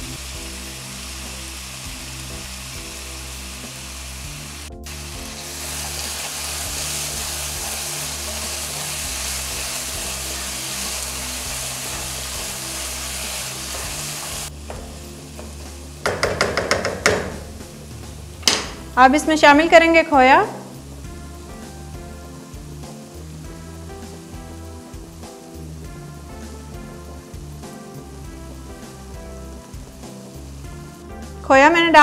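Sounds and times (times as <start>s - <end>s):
food sizzling in fat: 0.0s - 32.0s
sharp clicks and knocks: 14.7s - 17.5s, 18.4s - 18.8s.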